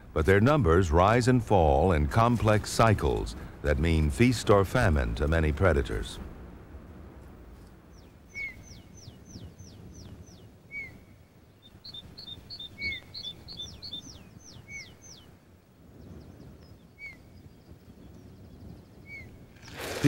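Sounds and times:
faint background hiss: 0:00.0 - 0:20.0
fast bird twittering: 0:07.9 - 0:15.3, 0:16.0 - 0:19.9.

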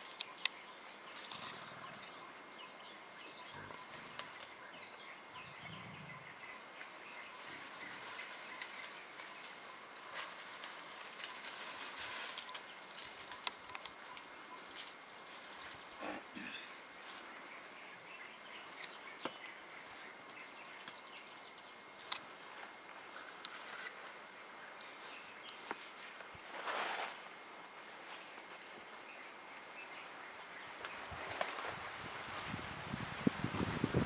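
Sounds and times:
leaves rustling and crackling: 0:06.7 - 0:15.1, 0:22.0 - 0:34.0.

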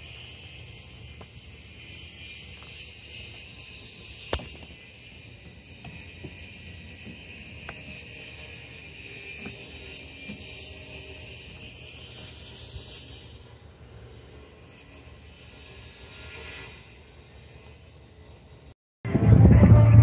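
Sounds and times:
insect chirring: 0:00.0 - 0:18.8
low rumble: 0:19.0 - 0:20.0.

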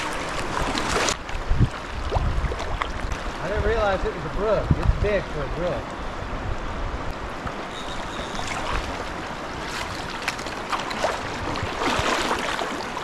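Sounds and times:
shallow stream burbling: 0:00.0 - 0:13.0
fish splashing in water: 0:08.0 - 0:13.0.

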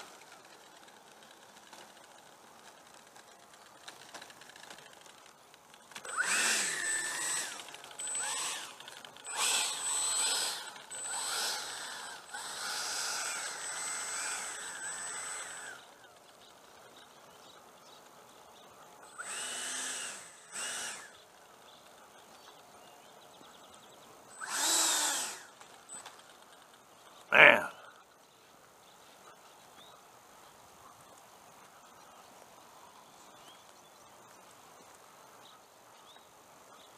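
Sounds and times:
electric ducted fan whining: 0:00.0 - 0:22.4, 0:23.0 - 0:27.2.

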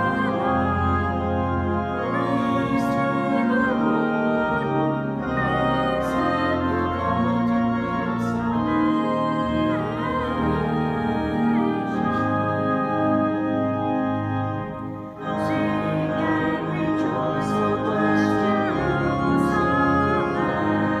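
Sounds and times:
church organ chords: 0:00.0 - 0:21.0.

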